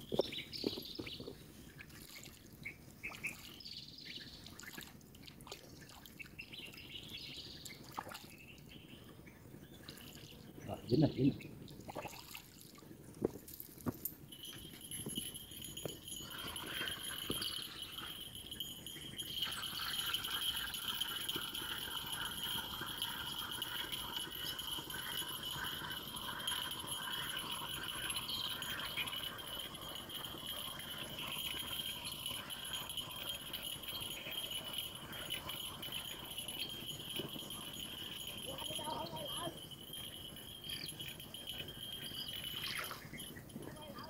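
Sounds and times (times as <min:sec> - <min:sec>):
rhythmic pulsing chirp: 0:14.3 - 0:44.0.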